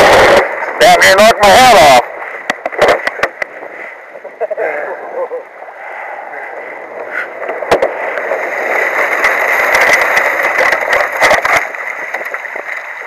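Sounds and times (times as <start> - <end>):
ice cracking against hull: 7.1 - 13.0.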